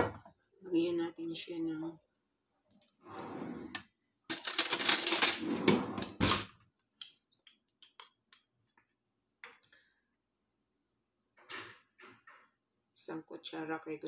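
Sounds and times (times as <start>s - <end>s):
kitchen things clattering: 4.3s - 6.6s.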